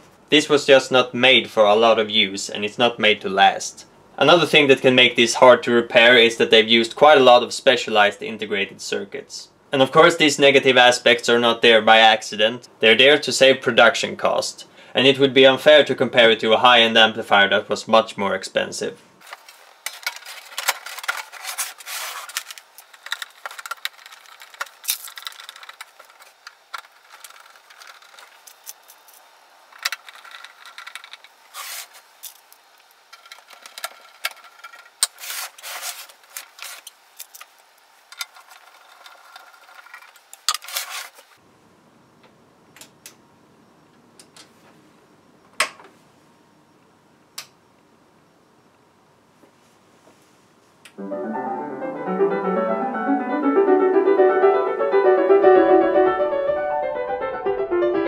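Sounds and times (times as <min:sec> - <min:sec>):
metallic clicks scrapes and rattles: 0:19.3 - 0:29.2, 0:29.8 - 0:37.5, 0:38.1 - 0:41.2.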